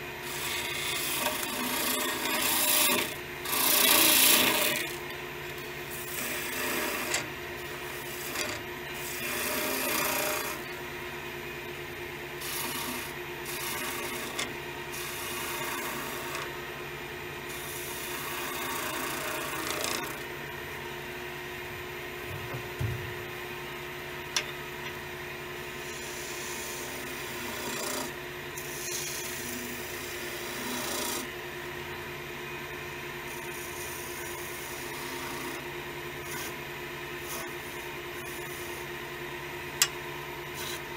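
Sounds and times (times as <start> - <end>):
wood lathe humming: 0.0 - 11.1, 12.2 - 16.8, 17.4 - 20.8, 24.3 - 31.3, 33.3 - 39.2, 40.5 - 40.9
chisel scraping wood: 0.2 - 5.1, 5.9 - 10.7, 12.4 - 16.5, 17.5 - 20.3, 25.8 - 31.3.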